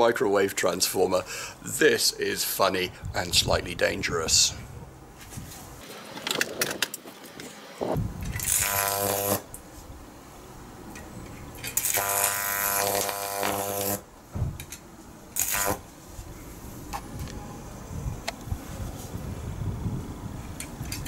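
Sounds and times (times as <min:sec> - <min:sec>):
electric arc buzzing and hissing: 0:07.8 - 0:09.8, 0:11.6 - 0:14.1, 0:15.2 - 0:16.0.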